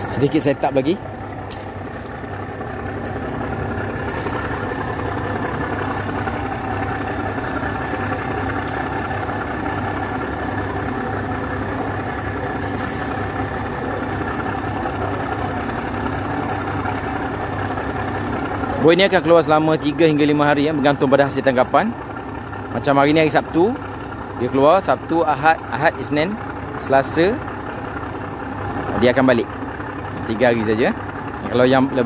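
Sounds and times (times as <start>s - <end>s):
diesel engine idling: 0.0s - 32.0s.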